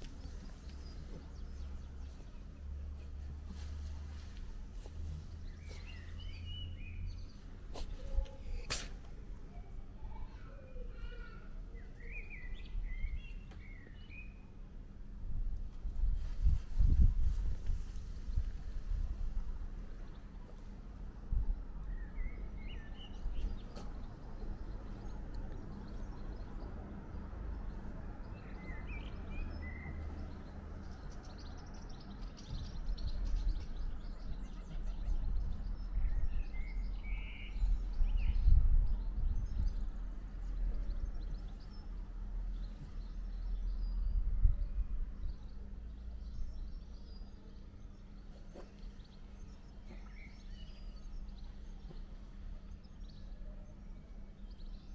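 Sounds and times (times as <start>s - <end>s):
faint bird chirps: 0.0s - 14.4s
steady low rumble: 14.9s - 53.2s.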